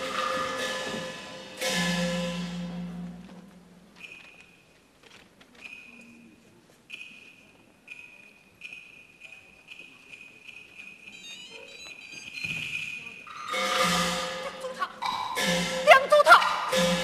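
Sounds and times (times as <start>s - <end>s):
small metal percussion strikes: 0.0s - 4.7s, 12.3s - 17.0s.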